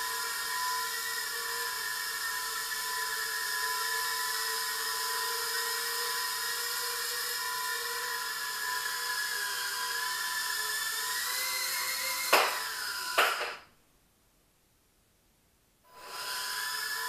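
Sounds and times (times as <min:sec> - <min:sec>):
quadcopter motors whining: 0:00.0 - 0:13.6, 0:15.9 - 0:17.0
sharp knocks: 0:13.2 - 0:13.6.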